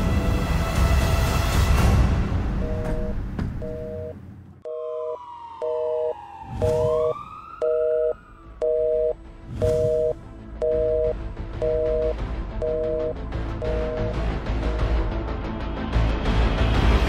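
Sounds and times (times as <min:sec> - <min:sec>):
telephone busy signal: 0:02.6 - 0:14.2
siren-like gliding tone: 0:04.6 - 0:10.1.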